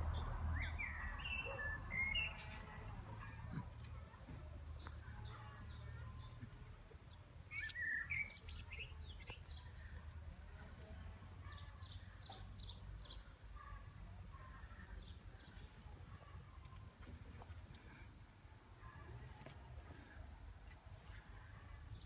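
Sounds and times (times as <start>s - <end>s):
small songbirds chirping: 0.0s - 3.3s, 4.3s - 13.8s.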